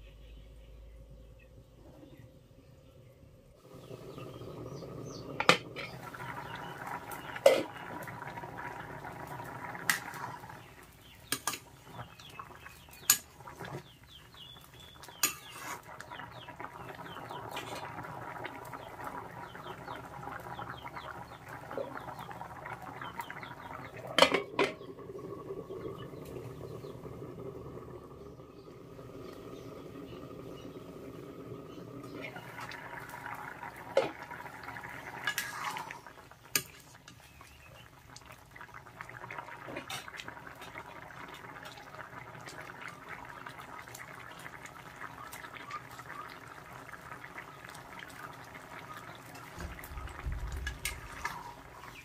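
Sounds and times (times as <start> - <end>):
curry bubbling: 3.6 - 52.0
metal ladle scraping a pan: 7.4 - 7.8, 15.2 - 15.9, 35.3 - 36.0
metal lid clattering onto pan: 24.2 - 24.8.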